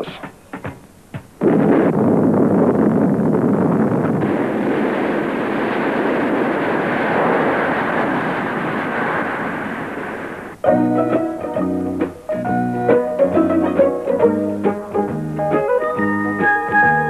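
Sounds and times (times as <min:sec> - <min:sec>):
cartoon volcano rumble: 0:01.4 - 0:10.6.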